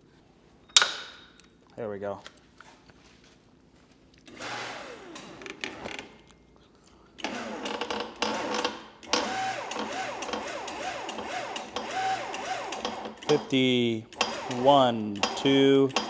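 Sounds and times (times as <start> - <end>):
hydraulic tube bender running: 7.2 - 16.0.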